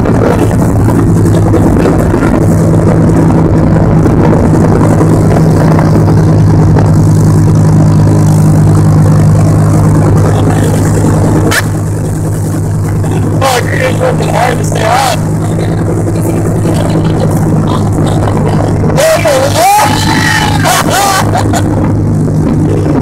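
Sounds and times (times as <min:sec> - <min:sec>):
motorboat engine running: 0:00.0 - 0:23.0
rushing boat wake: 0:00.0 - 0:23.0
short high cries: 0:19.3 - 0:21.4.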